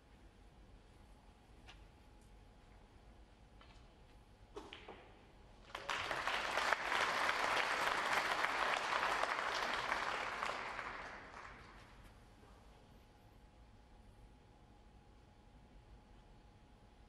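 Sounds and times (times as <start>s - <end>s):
audience applauding: 5.6s - 12.0s.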